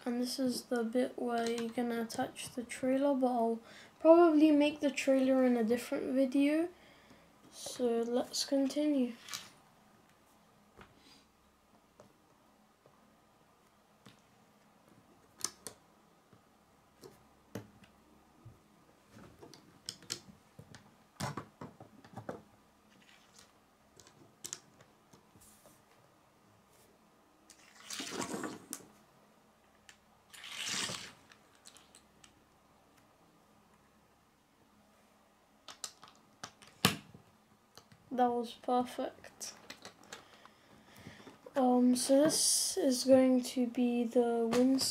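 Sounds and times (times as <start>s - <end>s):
plastic bricks clicking together: 23.1s - 24.9s, 29.9s - 32.4s, 35.6s - 37.0s.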